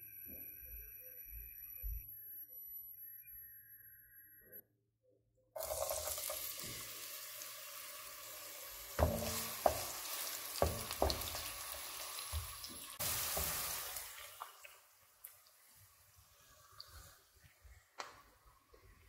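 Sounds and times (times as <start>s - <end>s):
onion sizzling in hot oil: 5.6s - 17.4s
wooden spoon knocking pot: 9.0s - 11.6s.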